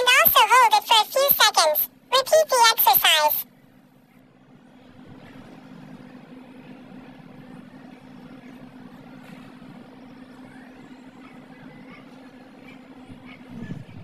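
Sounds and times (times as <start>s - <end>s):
low hum: 3.5s - 14.0s.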